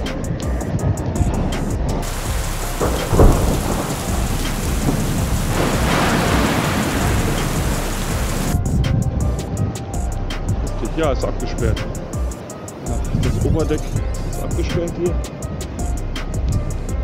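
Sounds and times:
storm wind gusting: 0.0 - 10.8.

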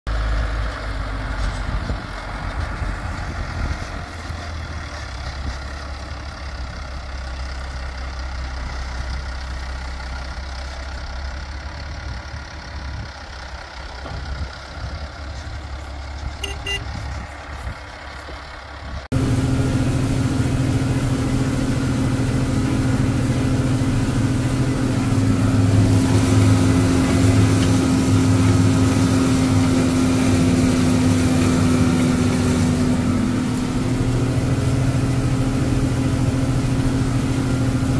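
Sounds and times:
tractor engine rumbling: 0.1 - 37.9
tractor engine working under load: 0.1 - 37.9.

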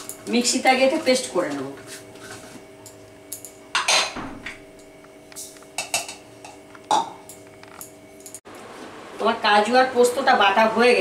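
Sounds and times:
steel bowls and spoon clinking: 2.8 - 4.2, 4.8 - 8.4.

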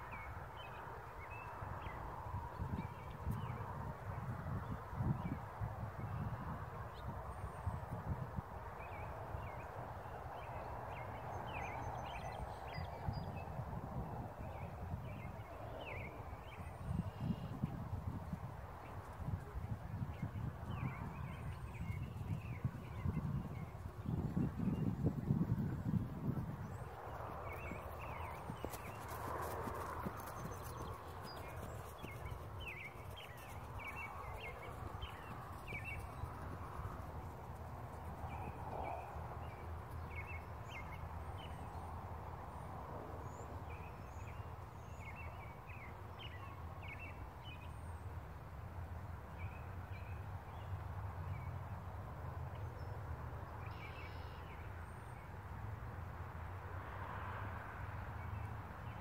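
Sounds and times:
horse hoofbeats on grass: 26.0 - 38.0
bird chirps: 53.7 - 54.5.

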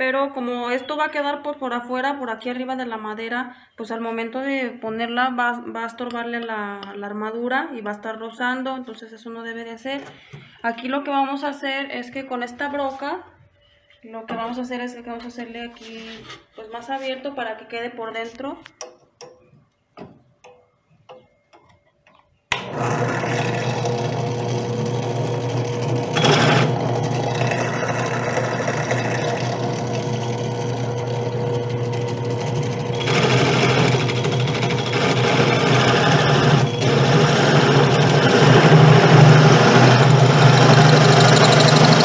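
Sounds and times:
drill press running: 22.5 - 42.0
hole saw cutting wood: 22.5 - 42.0.

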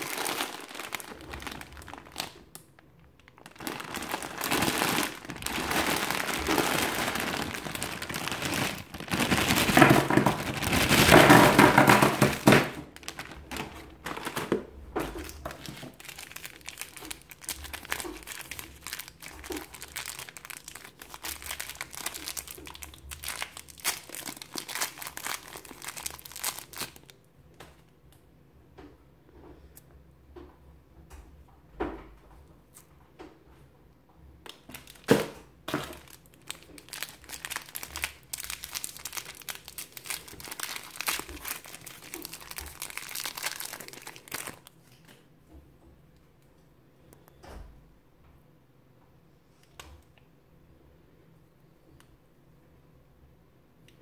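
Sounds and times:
plastic wrappers crinkling: 0.0 - 27.2, 34.5 - 45.2.

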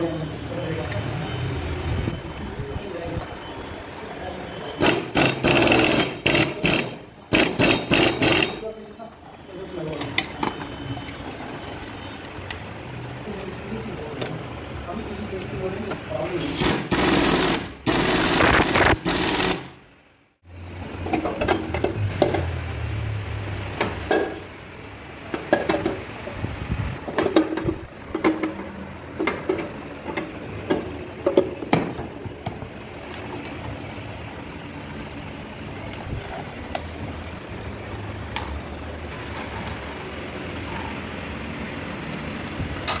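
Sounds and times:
impact wrench running: 4.8 - 8.6, 16.6 - 19.8
metal tools clinking: 38.0 - 41.2.

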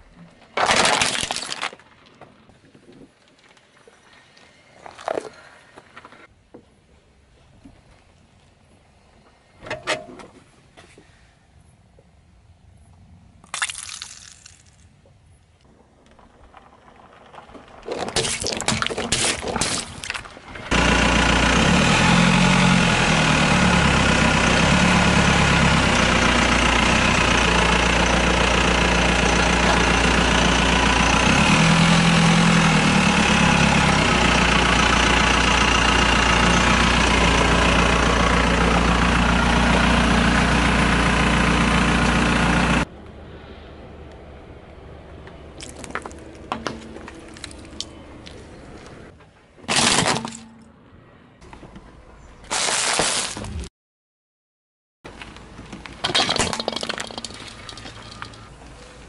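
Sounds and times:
car engine idling: 20.3 - 32.0, 32.7 - 42.9.

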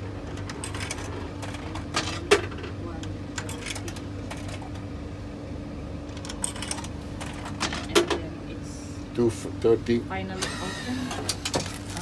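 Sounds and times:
steady low hum: 0.0 - 12.0
coins clicking into coin slot: 0.3 - 4.8, 6.1 - 8.2.

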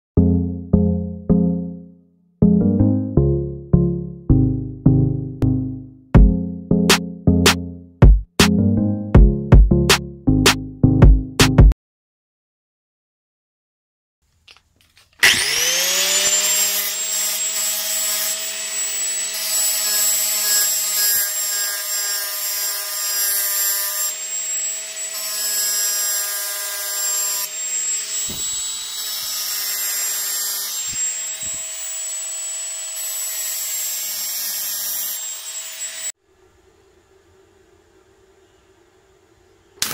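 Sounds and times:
angle grinder on steel: 15.2 - 36.2.

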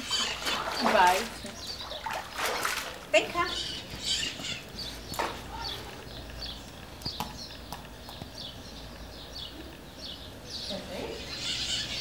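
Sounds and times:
bird chirping: 0.0 - 2.6, 3.4 - 12.0.

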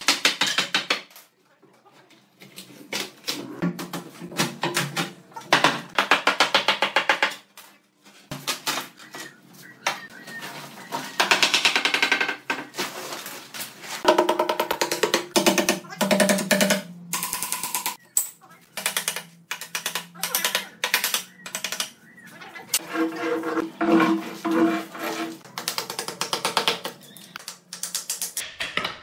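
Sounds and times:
boards and plastic dragged and torn: 12.5 - 14.1.

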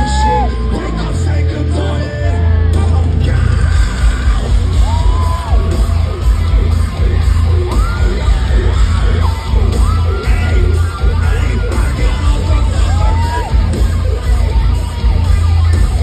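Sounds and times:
person yelling and singing: 0.0 - 5.8, 7.7 - 13.9
electric guitar: 0.0 - 16.0
heavy pulsing bass: 0.0 - 16.0
live rock band playing: 0.0 - 16.0.

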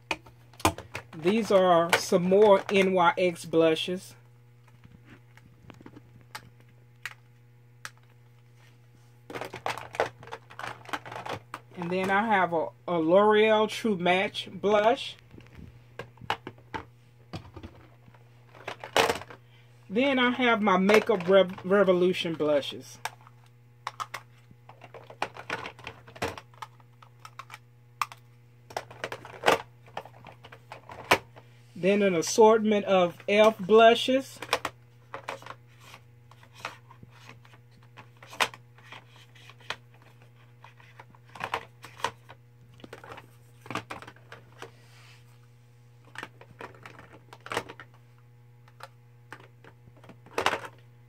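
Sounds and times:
steady low hum: 0.0 - 51.0
plastic compacts clattering: 0.1 - 3.0, 9.3 - 12.4, 15.3 - 19.4, 20.1 - 22.4, 23.0 - 31.4, 33.2 - 44.7, 46.0 - 48.0, 48.6 - 50.8
plastic compacts clicking: 23.9 - 31.2.

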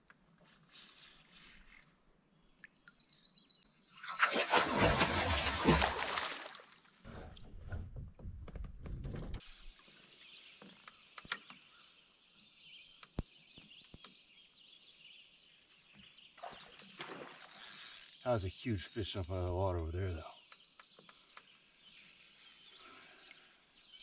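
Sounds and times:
water noise: 4.0 - 8.3, 16.4 - 17.9.

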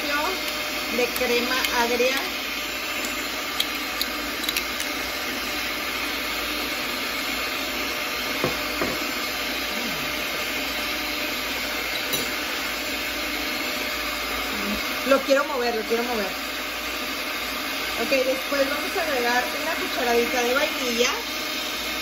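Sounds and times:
stand mixer motor running: 0.0 - 22.0.

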